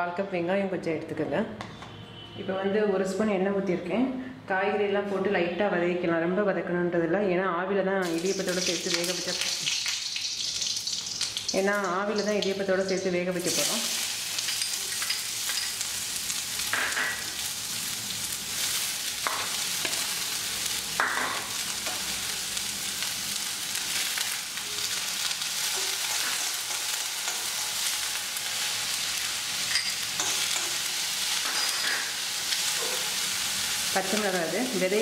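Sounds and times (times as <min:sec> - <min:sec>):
vegetables sizzling in oil: 0:08.0 - 0:35.0.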